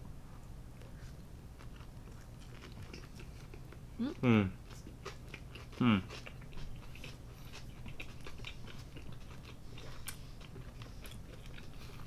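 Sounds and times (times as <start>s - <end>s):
chewing mouth sounds: 0.8s - 3.8s, 4.6s - 12.0s.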